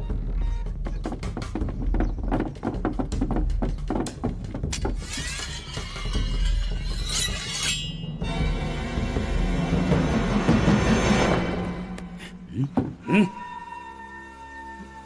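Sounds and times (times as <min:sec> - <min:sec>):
sword scraping out of scabbard: 0:04.8 - 0:08.0.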